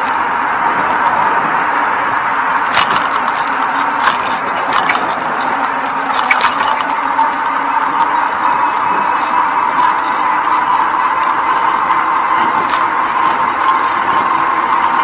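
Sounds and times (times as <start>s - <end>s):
bicycle ride rushing noise: 0.0s - 15.0s
bike rattling over bumps: 0.0s - 15.0s
faint constant whine: 0.0s - 15.0s.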